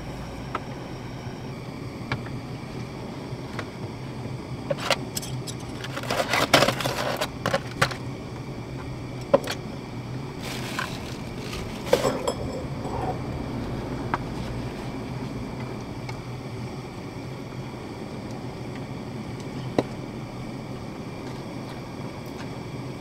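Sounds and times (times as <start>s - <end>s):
low background hum: 0.0s - 23.0s
aluminium foil crinkling: 5.6s - 7.8s, 10.4s - 12.1s
lettuce rustling: 10.4s - 12.2s.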